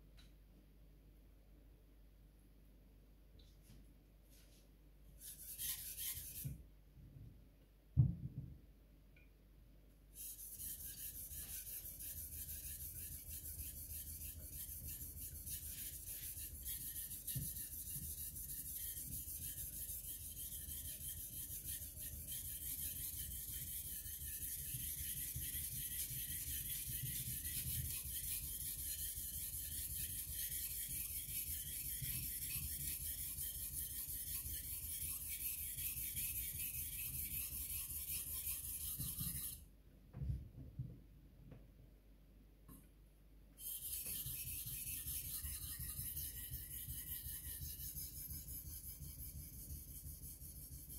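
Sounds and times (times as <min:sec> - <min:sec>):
knife scraping on whetstone: 0:10.2 - 0:39.6, 0:43.6 - 0:50.9.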